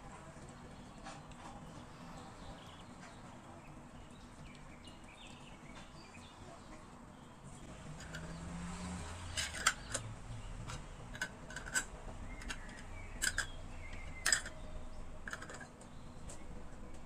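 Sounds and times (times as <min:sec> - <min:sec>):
lids clicking onto glass jars: 0:07.9 - 0:08.6, 0:09.2 - 0:16.4.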